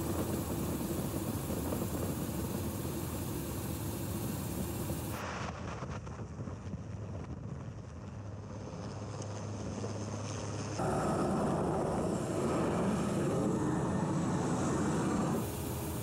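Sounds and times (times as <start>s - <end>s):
helicopter engine and rotor noise: 0.0s - 5.2s, 9.5s - 16.0s.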